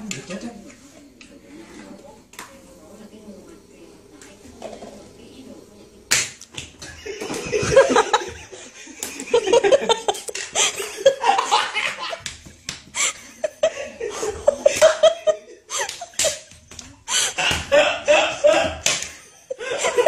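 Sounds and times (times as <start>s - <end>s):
men laughing hard: 7.0s - 12.2s, 12.9s - 16.5s, 17.1s - 20.0s.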